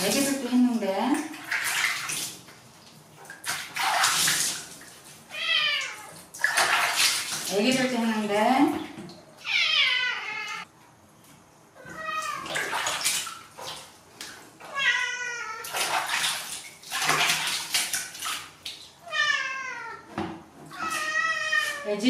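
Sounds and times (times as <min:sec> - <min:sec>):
hands splashing water: 0:03.2 - 0:05.2, 0:05.8 - 0:07.9, 0:12.2 - 0:14.5, 0:15.6 - 0:18.9
cat meowing: 0:05.3 - 0:06.2, 0:09.4 - 0:10.7, 0:11.8 - 0:12.6, 0:14.6 - 0:15.7, 0:19.0 - 0:20.1, 0:20.7 - 0:21.9.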